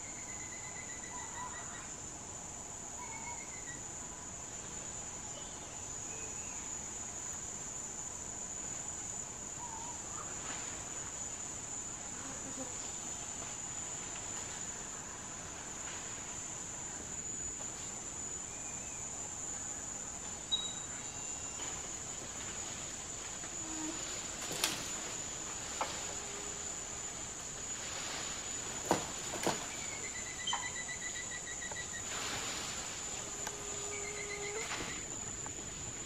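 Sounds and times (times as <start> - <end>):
faint bird chirps: 0.0 - 1.9, 3.0 - 3.8, 20.5 - 21.7
insect chorus drone: 0.0 - 36.0.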